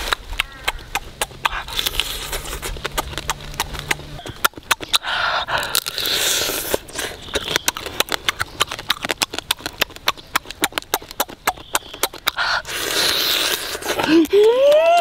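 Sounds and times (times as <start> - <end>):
wet lip-smacking and chewing: 0.0 - 15.0
breathy slurps: 4.2 - 7.4, 12.0 - 14.6.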